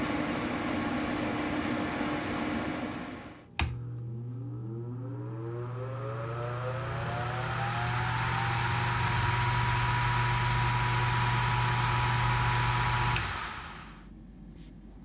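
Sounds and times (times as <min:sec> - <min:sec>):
fan motor whine: 0:00.0 - 0:14.1
low hum: 0:03.5 - 0:15.0.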